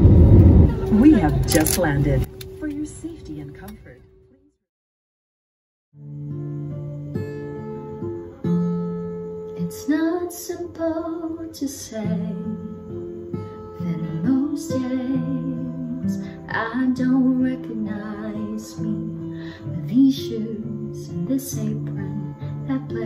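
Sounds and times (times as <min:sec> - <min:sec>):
acoustic guitar: 0:06.0 - 0:23.0
woman singing: 0:09.6 - 0:12.8, 0:13.8 - 0:23.0.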